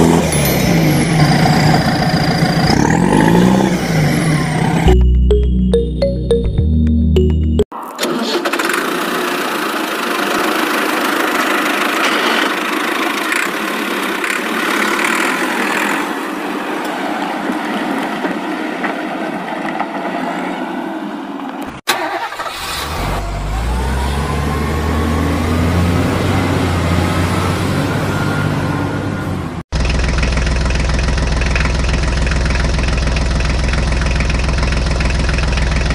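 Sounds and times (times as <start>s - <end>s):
deep engine idling: 29.8s - 35.9s.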